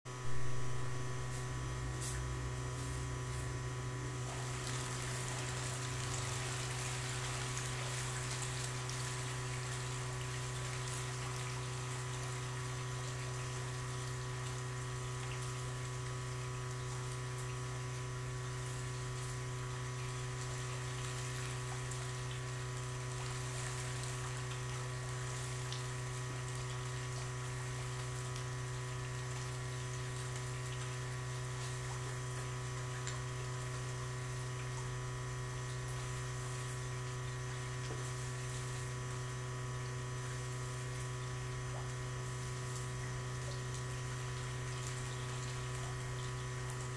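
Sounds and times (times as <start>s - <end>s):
low electric hum: 0.1s - 46.9s
moving water: 4.2s - 46.9s.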